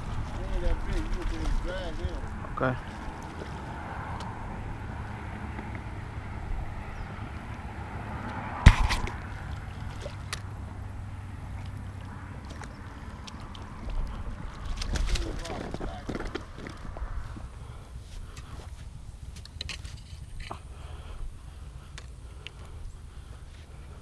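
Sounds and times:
water splashing: 0.0s - 5.4s, 6.8s - 16.6s
wind rumble on microphone: 0.0s - 19.2s
sharp knock: 8.6s - 9.2s.

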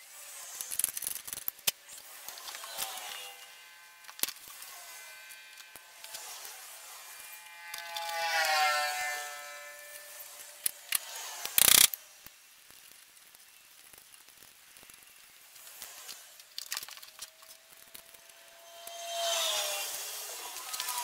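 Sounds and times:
loud scrape: 0.0s - 12.0s, 17.0s - 21.0s
drawn-out squeal: 2.2s - 11.4s, 17.2s - 21.0s.

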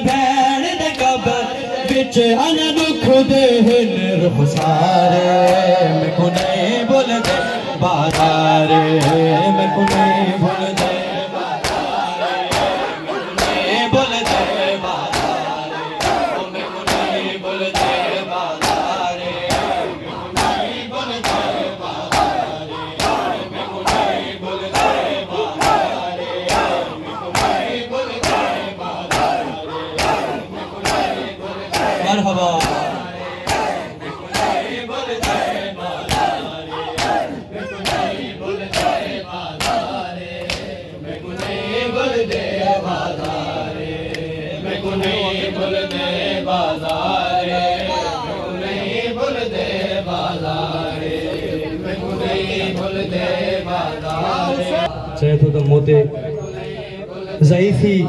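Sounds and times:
men slapping chests in unison: 0.0s - 48.0s, 54.0s - 54.4s
crowd calling out in rhythm: 0.0s - 55.2s
hands slapping chests: 11.6s - 12.8s, 25.6s - 28.5s, 32.6s - 34.6s, 35.2s - 37.2s, 37.8s - 38.1s, 38.7s - 39.0s, 39.6s - 40.7s.

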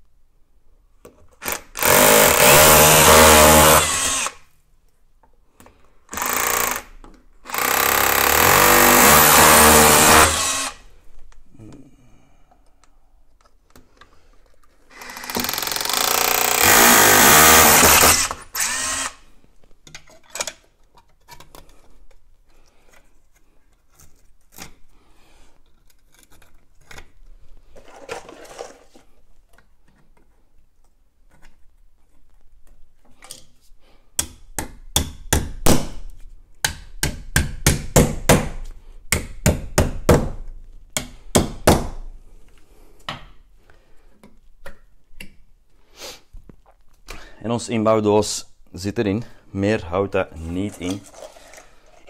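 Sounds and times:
hammer drill boring into brick: 1.4s - 4.4s, 6.1s - 10.8s, 14.9s - 19.2s
tool tapping sharp knocks: 34.2s - 35.9s, 36.6s - 40.4s.

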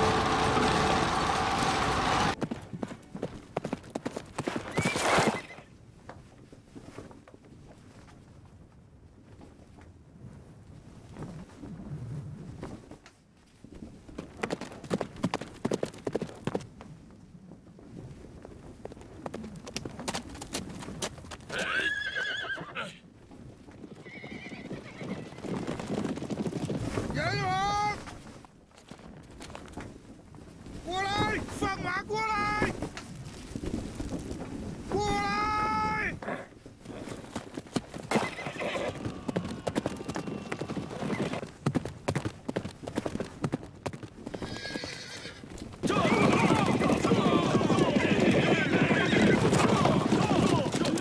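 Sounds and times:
horse hooves clattering: 0.0s - 8.5s, 13.5s - 17.0s, 18.3s - 30.8s, 36.6s - 51.0s
horse neighing: 21.5s - 23.0s, 24.0s - 25.4s, 38.1s - 41.4s, 44.4s - 51.0s.

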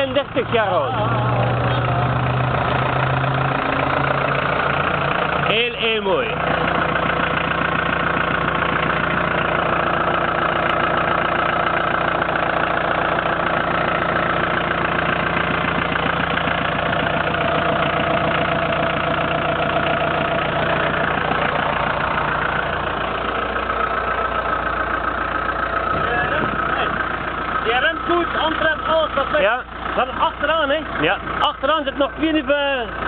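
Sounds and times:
diesel engine idling: 0.0s - 33.0s.

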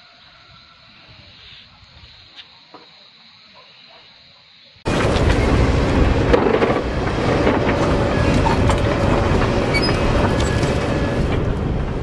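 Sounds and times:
fire crackling and popping: 4.9s - 12.0s
wildfire rumbling: 4.9s - 12.0s.

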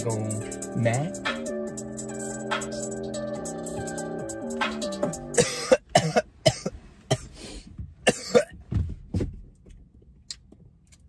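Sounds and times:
man coughing: 5.3s - 7.4s, 8.0s - 8.6s.

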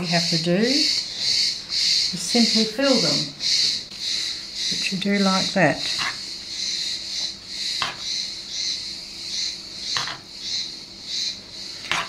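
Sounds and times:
insect chirping: 0.0s - 12.0s.

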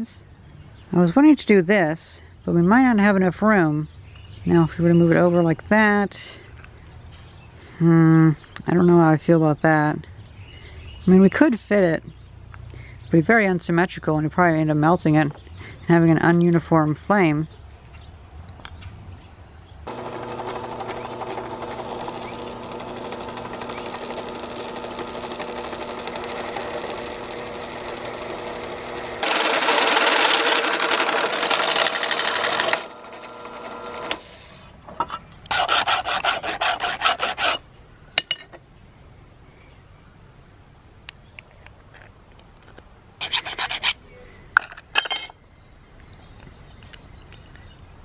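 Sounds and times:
drill bit cutting metal: 19.9s - 34.2s
drill press motor humming: 19.9s - 34.6s
rasping scrapes: 35.5s - 37.6s, 43.2s - 44.0s.

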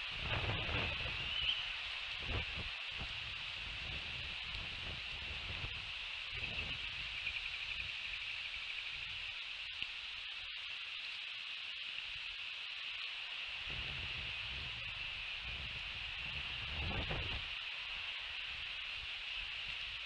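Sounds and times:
wind rumble on microphone: 0.0s - 8.2s, 13.6s - 17.6s
high-pitched hiss: 0.0s - 20.0s.

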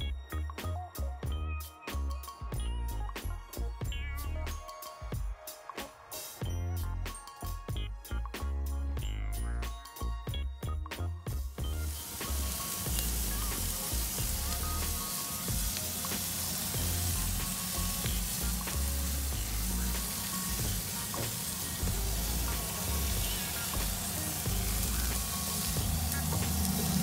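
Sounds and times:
meat sizzling on a grill: 11.6s - 27.0s.

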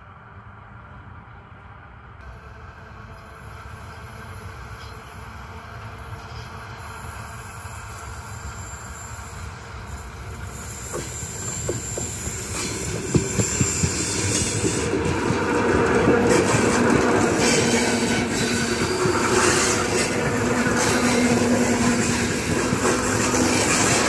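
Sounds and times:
electric train running: 2.1s - 24.0s
wheels clicking over rail joints: 9.9s - 24.0s.

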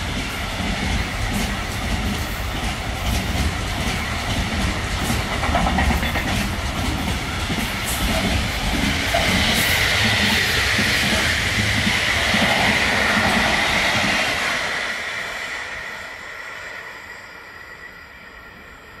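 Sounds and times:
freight train wagons rolling: 0.0s - 11.2s.

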